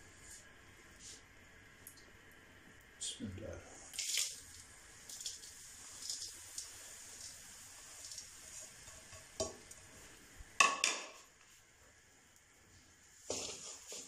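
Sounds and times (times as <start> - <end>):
faint sizzle: 0.0 - 14.0
plate knocking against pan: 10.6 - 11.2.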